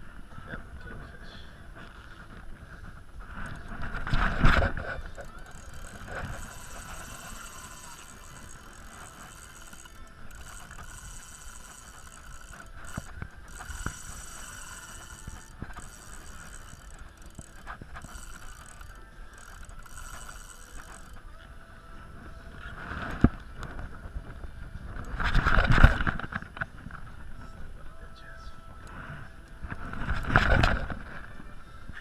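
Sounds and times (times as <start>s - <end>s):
wind: 0.0s - 32.0s
fishing reel whirring: 1.8s - 26.7s, 28.6s - 31.2s
sea noise: 3.2s - 21.4s
small clicks: 3.4s - 21.3s.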